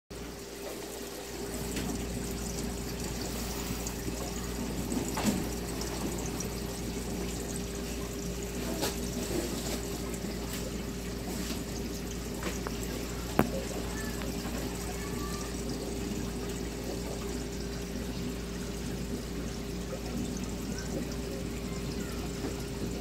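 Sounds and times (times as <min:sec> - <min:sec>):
aquarium water bubbling: 0:00.1 - 0:23.0
pump hum: 0:00.1 - 0:23.0
faint clicks: 0:12.4 - 0:15.8.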